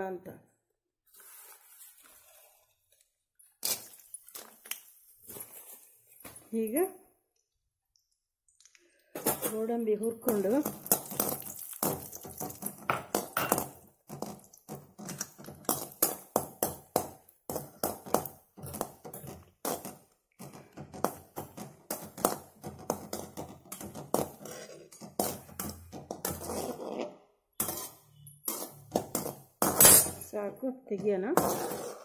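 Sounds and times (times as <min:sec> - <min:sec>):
metal spoon scraping pan: 0:22.9 - 0:30.3.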